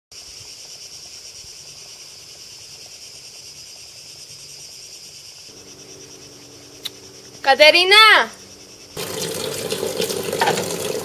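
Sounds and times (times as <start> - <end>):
insects chirring: 0.1 - 11.0.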